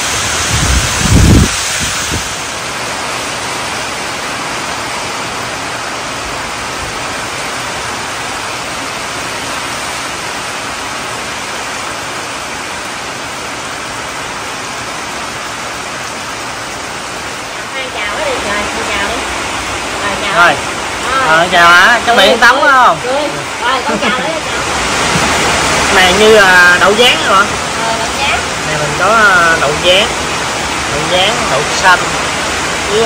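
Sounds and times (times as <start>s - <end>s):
heavy rain on leaves and roofs: 0.0s - 33.0s.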